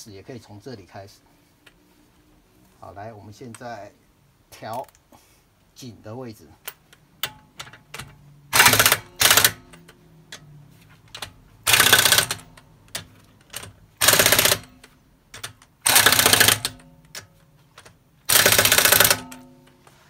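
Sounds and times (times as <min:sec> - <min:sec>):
impact wrench hammering: 0:07.2 - 0:09.8, 0:11.6 - 0:12.5, 0:13.6 - 0:17.3, 0:18.3 - 0:19.5.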